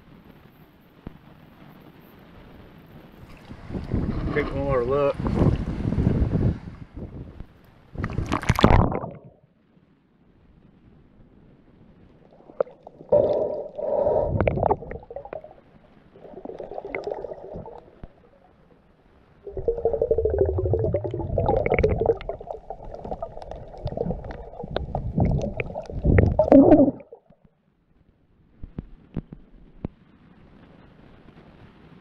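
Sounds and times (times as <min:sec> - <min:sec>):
underwater rumbling and gurgling: 0:03.0 - 0:09.5, 0:11.2 - 0:27.5.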